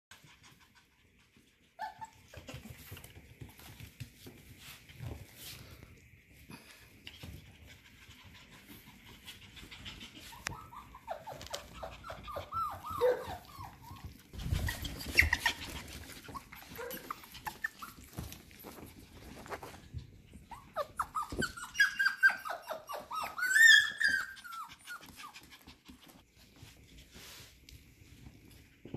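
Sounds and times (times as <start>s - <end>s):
puppies whimpering and yipping: 1.3s - 3.0s, 8.6s - 26.2s.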